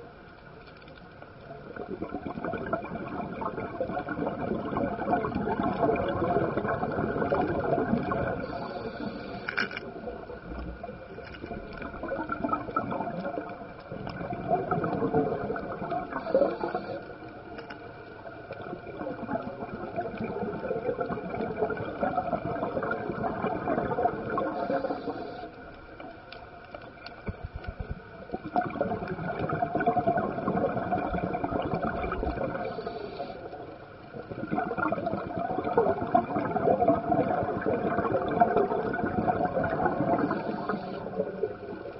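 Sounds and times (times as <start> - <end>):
bubbling exhalations: 1.8 - 17.0, 18.6 - 25.4, 28.3 - 33.4, 34.2 - 41.9
diver breathing through regulator: 8.4 - 9.7, 16.2 - 17.2, 24.4 - 25.6, 32.5 - 33.5, 40.2 - 41.2.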